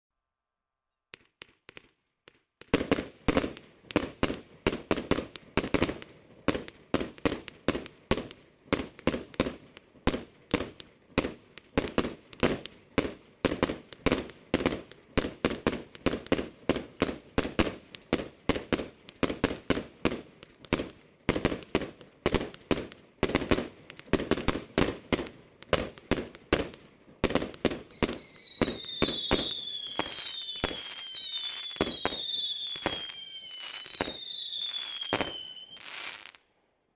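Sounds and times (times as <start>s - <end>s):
fireworks bangs: 1.2s - 36.4s
falling firework whistles: 27.9s - 36.4s.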